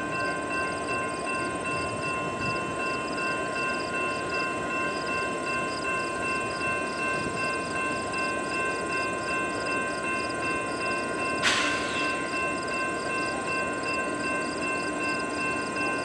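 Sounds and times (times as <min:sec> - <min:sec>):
crossing bell ringing: 0:00.0 - 0:16.0
sharp bang: 0:11.4 - 0:12.0.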